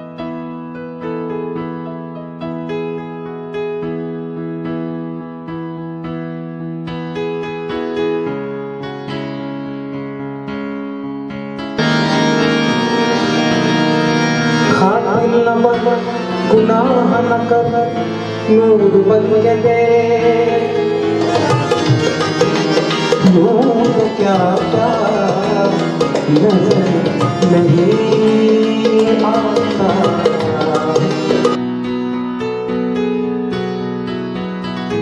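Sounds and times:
held instrumental tones: 0:11.8 - 0:31.6
tabla drumming: 0:18.8 - 0:31.6
man singing ornamented lines: 0:23.2 - 0:31.5.

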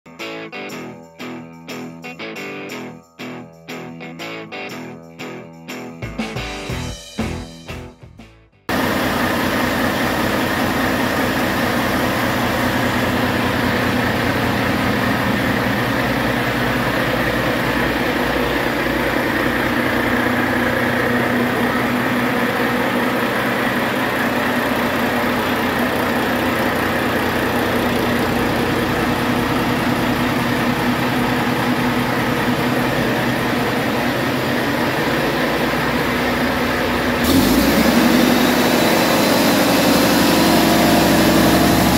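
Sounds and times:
diesel engine running: 0:08.7 - 0:41.9.

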